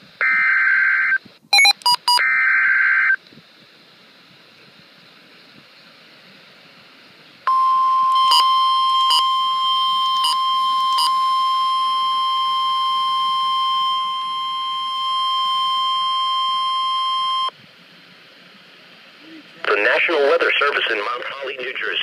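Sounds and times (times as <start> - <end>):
steady warning alarm tone: 7.5 - 17.5.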